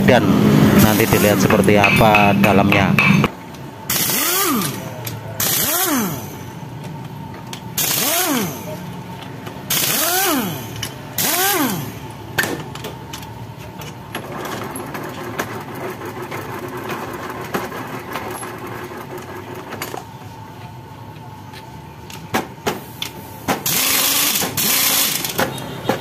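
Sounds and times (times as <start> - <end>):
steady hum: 0.0 - 14.1
pneumatic impact wrench: 3.9 - 6.6, 7.5 - 8.8, 9.7 - 12.9, 22.6 - 26.0
clicks and knocks of tools: 6.8 - 7.8, 10.7 - 11.0, 12.4 - 15.6.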